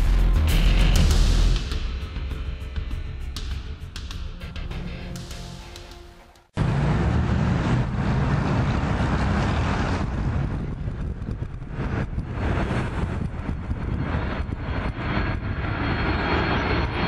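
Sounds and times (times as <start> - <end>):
jet engines rumbling: 6.5 - 17.0.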